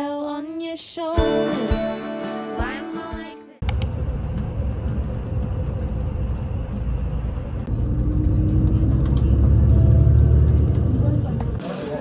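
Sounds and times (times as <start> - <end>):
road and engine rumble: 3.6 - 12.0.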